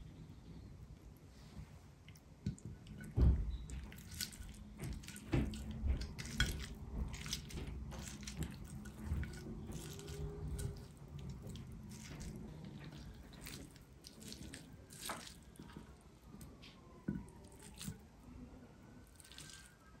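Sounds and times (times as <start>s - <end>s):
meat tearing: 3.8s - 16.0s, 17.4s - 18.0s, 19.0s - 19.8s.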